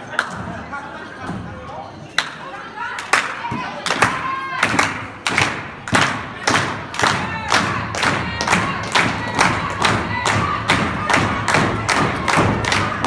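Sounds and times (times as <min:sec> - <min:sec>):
crowd stamping and clapping: 0:03.0 - 0:13.0.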